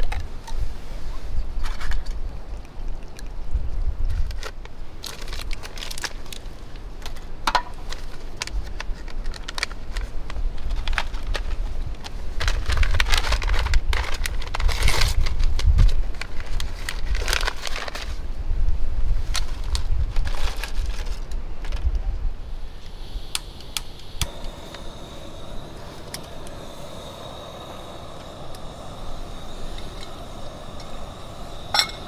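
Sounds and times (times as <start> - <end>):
wind rumble on microphone: 0.0 - 5.7, 8.4 - 32.0
plastic packet crinkling: 4.4 - 6.5
camp cooking gear clinking: 22.8 - 32.0.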